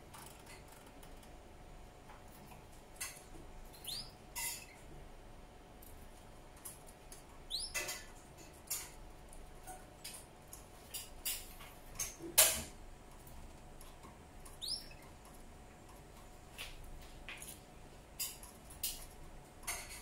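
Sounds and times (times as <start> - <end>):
rising bird chirp: 7.5 - 7.8, 14.6 - 15.0.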